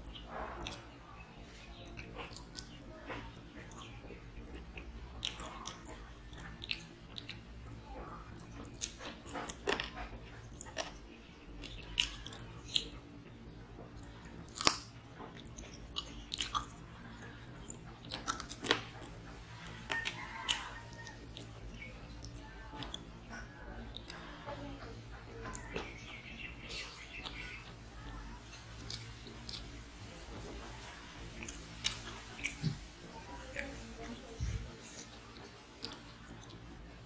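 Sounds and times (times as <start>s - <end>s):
person chewing and biting: 14.3s - 16.8s, 17.5s - 21.5s, 28.6s - 29.8s.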